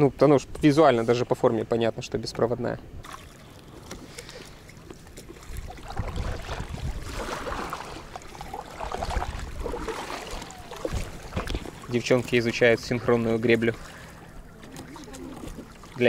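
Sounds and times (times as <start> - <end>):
sea water splashing: 3.0 - 16.0
wind rumbling on microphone: 5.4 - 12.0.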